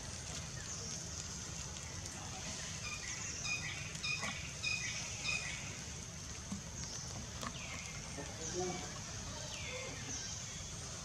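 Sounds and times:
small bird chirping: 0:02.6 - 0:05.9.

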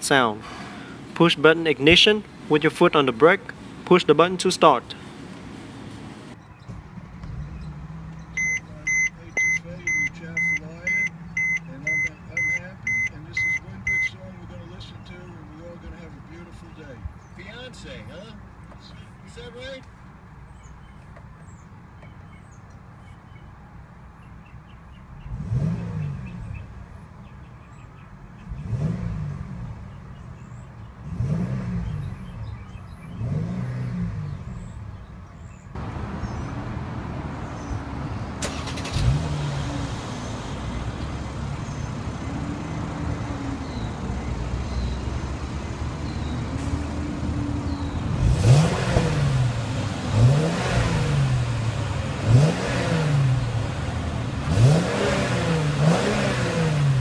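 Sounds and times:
car engine idling and revving: 0:04.9 - 0:16.3, 0:24.1 - 0:57.0.

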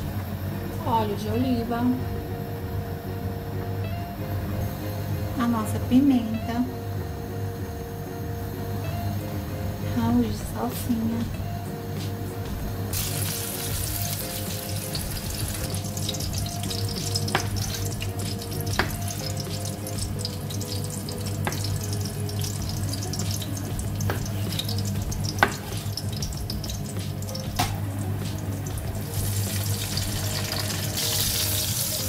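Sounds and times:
oil sizzling in a pan: 0:12.9 - 0:32.0.

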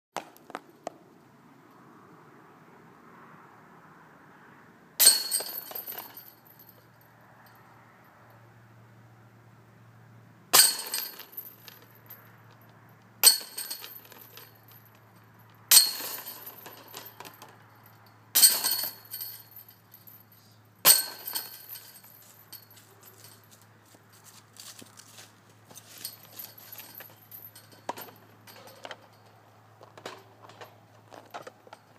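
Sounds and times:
chain jingling rattle: 0:05.0 - 0:07.0, 0:10.6 - 0:12.3, 0:13.2 - 0:24.2, 0:25.7 - 0:29.5
discs striking metal chains: 0:05.0 - 0:07.6, 0:10.6 - 0:24.2, 0:25.7 - 0:31.9.

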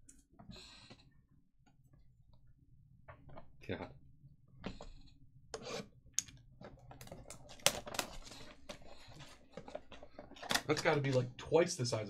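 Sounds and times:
plastic shrink wrap crinkling: 0:06.9 - 0:11.2.

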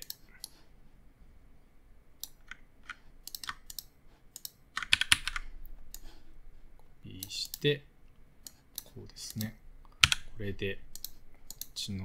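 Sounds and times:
keyboard and mouse clicking: 0:00.0 - 0:00.6, 0:02.2 - 0:06.1, 0:08.4 - 0:10.3, 0:10.9 - 0:11.8.

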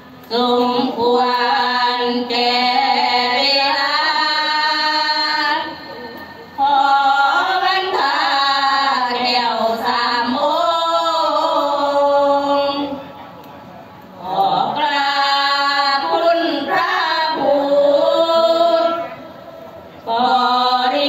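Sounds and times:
women chanting melodically: 0:06.6 - 0:13.0, 0:14.2 - 0:19.3, 0:20.1 - 0:21.0.

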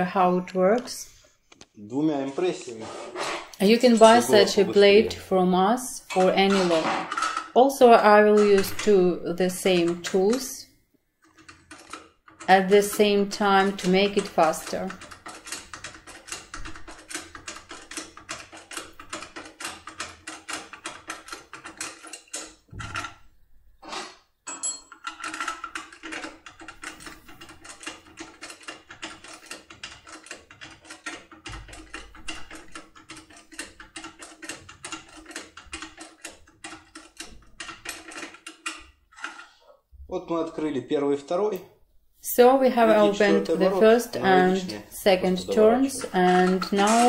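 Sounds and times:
metal clicking in a lock: 0:14.9 - 0:23.2, 0:24.5 - 0:39.4.

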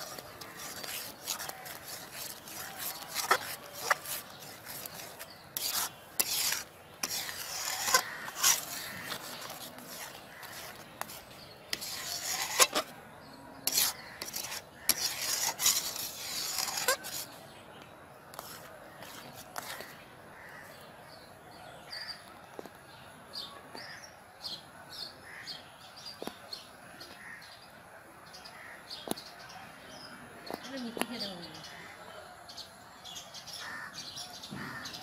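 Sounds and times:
metal spatula scraping pan: 0:00.0 - 0:13.0, 0:13.6 - 0:17.4.

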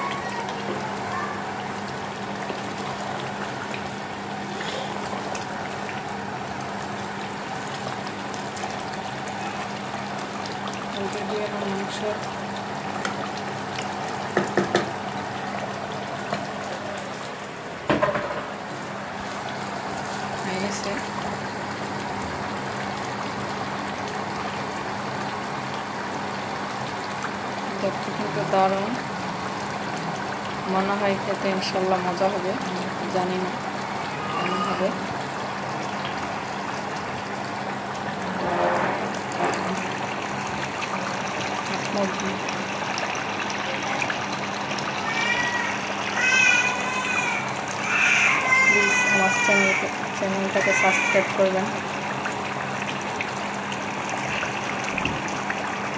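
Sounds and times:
curry bubbling in a pot: 0:00.0 - 0:55.9
wooden spoon knocking on pot: 0:14.4 - 0:14.9, 0:17.9 - 0:18.5.

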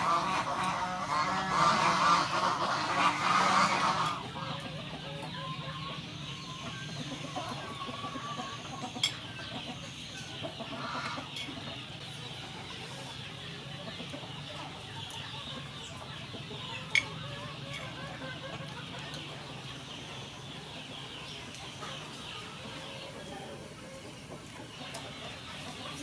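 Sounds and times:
domestic fowl calling: 0:00.0 - 0:11.6.

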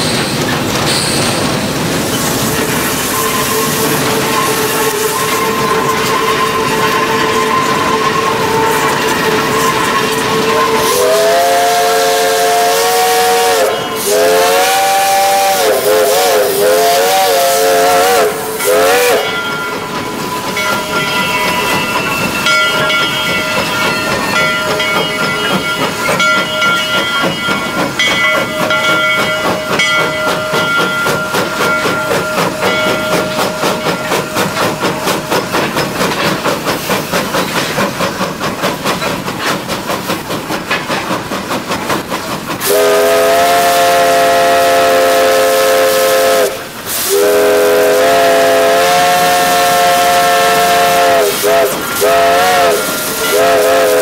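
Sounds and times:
steam hiss: 0:00.0 - 0:54.0
steam locomotive chuffing: 0:00.0 - 0:54.0
steam whistle blast: 0:03.0 - 0:19.4, 0:42.6 - 0:54.0.

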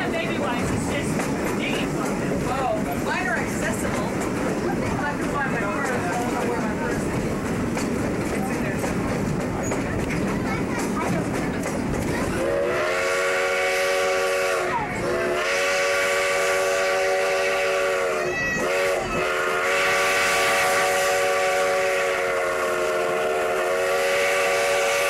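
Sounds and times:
train running: 0:00.0 - 0:25.0
steam whistle blowing: 0:12.4 - 0:25.0.

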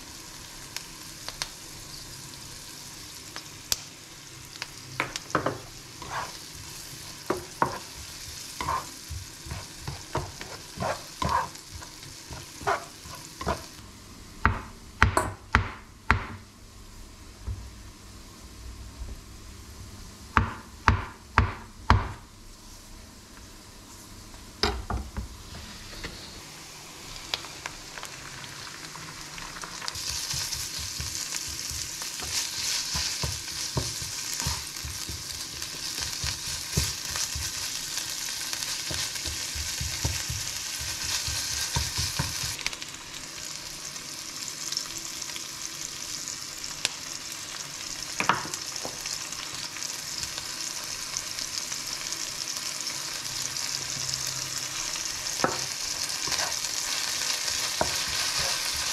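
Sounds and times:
food sizzling in a frying pan: 0:00.0 - 0:14.1, 0:25.3 - 0:58.9
spatula scraping and knocking pan: 0:07.3 - 0:13.7, 0:30.0 - 0:37.8, 0:38.8 - 0:42.6.

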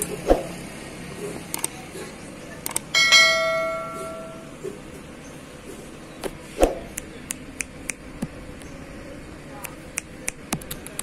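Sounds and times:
notification bell ding: 0:03.0 - 0:04.5.

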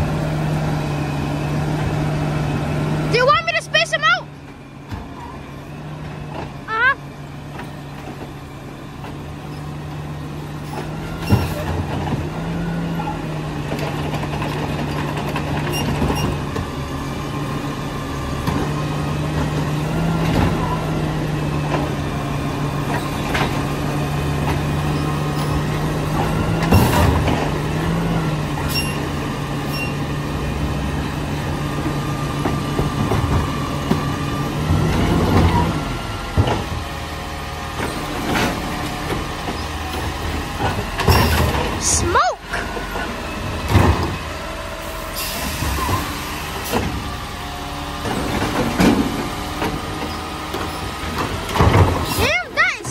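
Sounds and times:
diesel truck engine running: 0:00.0 - 0:52.9
carts clanking and knocking: 0:10.6 - 0:16.8, 0:21.6 - 0:30.0, 0:31.6 - 0:37.0, 0:37.6 - 0:44.3, 0:48.0 - 0:52.9.

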